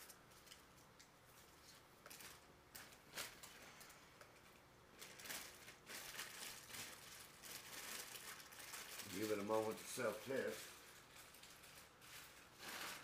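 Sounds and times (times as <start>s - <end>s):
faint clicks and rustles handling: 0.0s - 13.0s.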